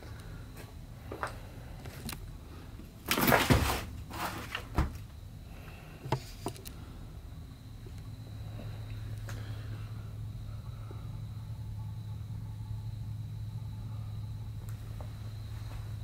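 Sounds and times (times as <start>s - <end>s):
scraping rustle: 3.1s - 4.7s.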